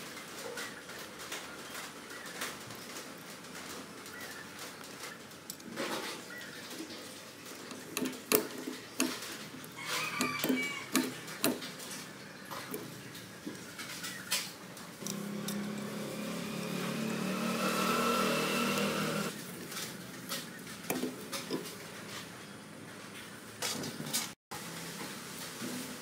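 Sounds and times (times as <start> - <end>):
motor running: 15.0 - 19.3.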